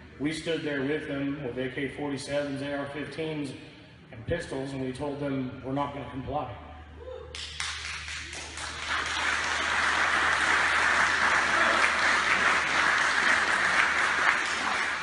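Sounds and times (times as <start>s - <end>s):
audience applauding: 7.4s - 15.0s.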